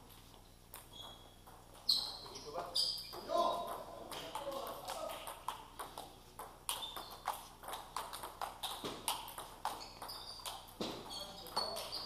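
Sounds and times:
table tennis balls clicking: 3.1 - 12.0.

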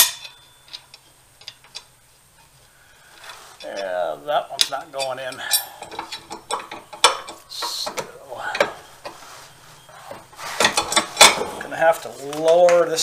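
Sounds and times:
metal parts clicking and clinking: 0.0 - 2.6, 3.2 - 9.2, 10.1 - 11.6
bolts knocking together: 4.6 - 9.2.

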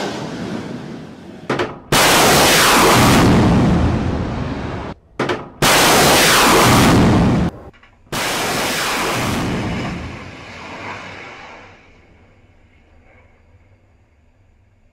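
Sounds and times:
rocket booster roaring: 1.9 - 5.0, 5.6 - 11.8.

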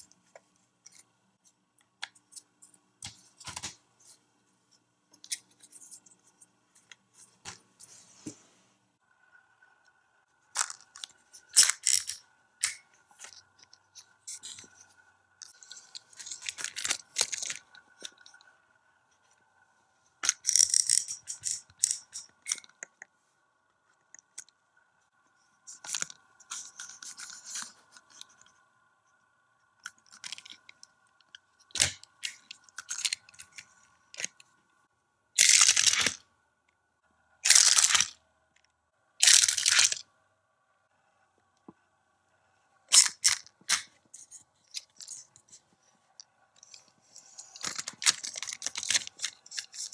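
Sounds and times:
plastic toy clicking and scraping: 10.6 - 18.5, 20.2 - 23.0, 29.8 - 34.5, 35.4 - 36.2, 37.4 - 38.2, 39.2 - 40.1, 42.9 - 49.9.

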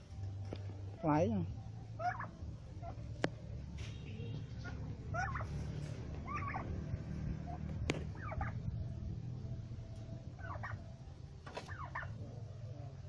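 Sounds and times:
steady low rumble: 0.0 - 11.4
turkeys calling: 2.0 - 3.1, 4.2 - 6.8, 7.4 - 8.7, 10.0 - 13.0.

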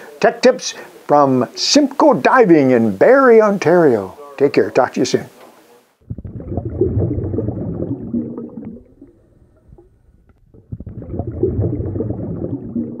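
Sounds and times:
water bubbling and gurgling: 6.0 - 13.0.

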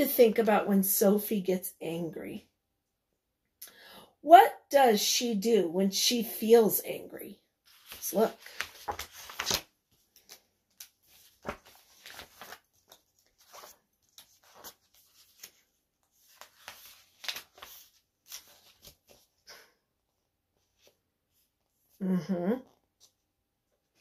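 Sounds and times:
book pages rustling: 7.6 - 19.5, 20.4 - 21.9.

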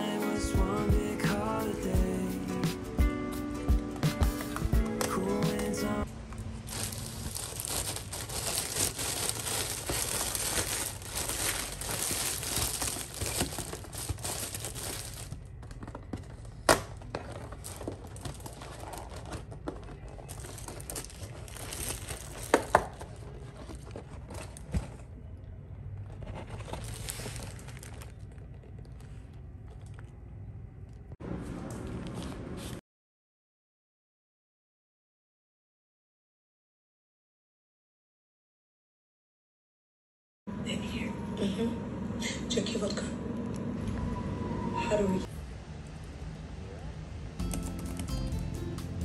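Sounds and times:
plastic and paper crinkling: 6.3 - 30.2.

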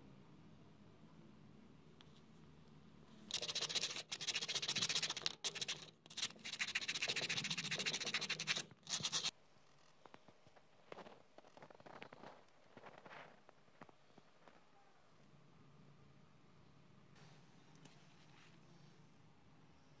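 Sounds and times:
sandpaper rasping on wood: 3.3 - 9.3.

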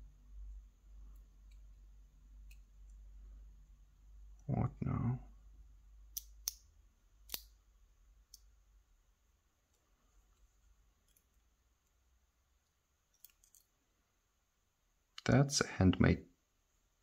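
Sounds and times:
lock parts clicking: 13.1 - 13.7.

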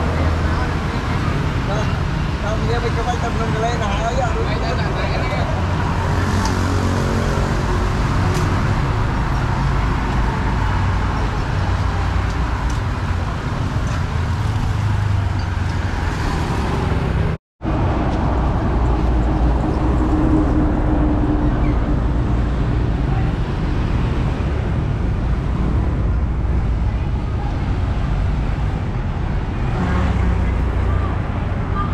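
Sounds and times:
road noise: 0.0 - 31.9
vehicle engines: 0.0 - 31.9.

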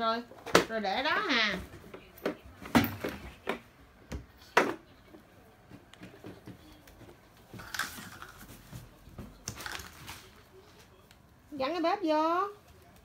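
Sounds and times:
plastic toys shuffling and rustling: 5.8 - 11.0.

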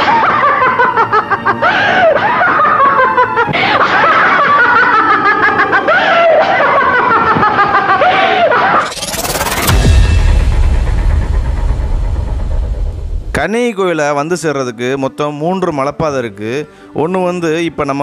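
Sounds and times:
person laughing loudly: 0.0 - 8.9.

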